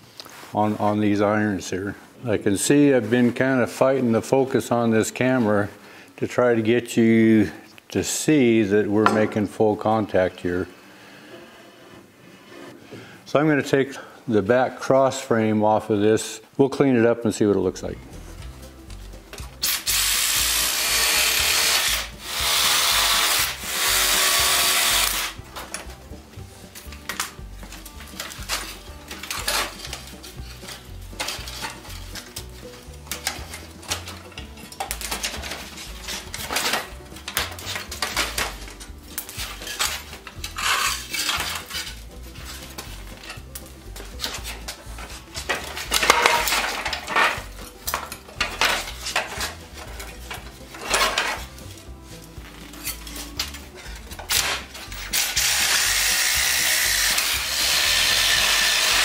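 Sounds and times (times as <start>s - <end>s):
cordless power tool running: 19.6s - 25.4s, 55.4s - 59.0s
iron and wood parts clanking: 25.4s - 55.4s.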